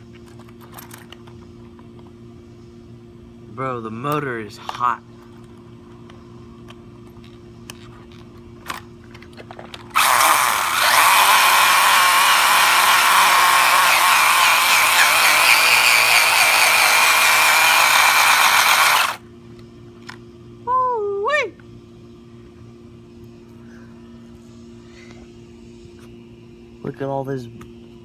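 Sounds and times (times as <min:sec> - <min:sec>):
electric motor and gears whining: 0:09.9 - 0:19.2
tyres spinning on concrete: 0:09.9 - 0:19.2.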